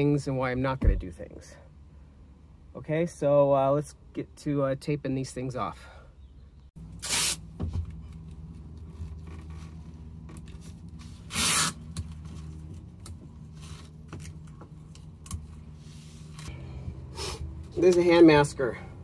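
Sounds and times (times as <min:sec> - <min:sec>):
masking tape ripping off roll: 0:07.0 - 0:07.4, 0:11.2 - 0:12.1.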